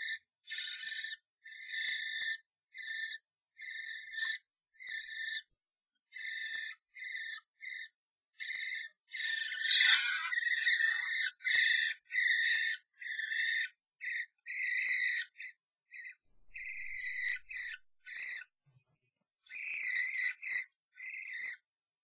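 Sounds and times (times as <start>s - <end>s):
starlings screeching: 0.0s - 5.4s, 8.4s - 18.4s, 19.5s - 21.5s.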